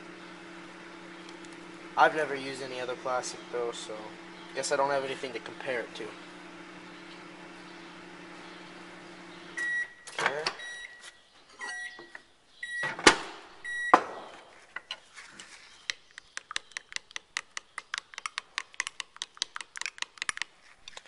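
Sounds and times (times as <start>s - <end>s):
microwave oven beeping: 6.2s - 11.0s, 11.6s - 14.1s.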